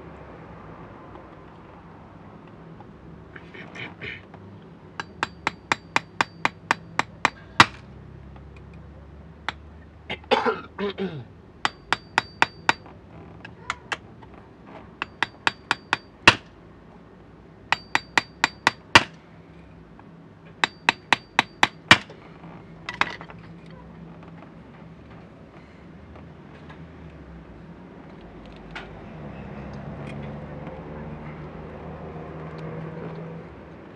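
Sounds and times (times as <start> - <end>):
small tool tapping metal: 5.0 - 7.8, 11.6 - 12.8, 15.0 - 16.4, 17.7 - 19.1, 20.6 - 22.1.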